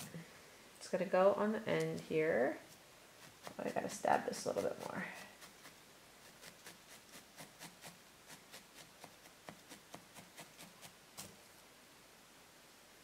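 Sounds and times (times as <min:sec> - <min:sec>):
felting needles stabbing into wool: 0:02.7 - 0:11.4.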